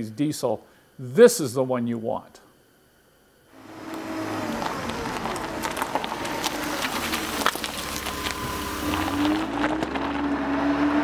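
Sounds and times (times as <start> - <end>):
engine running and revving: 3.6 - 11.0.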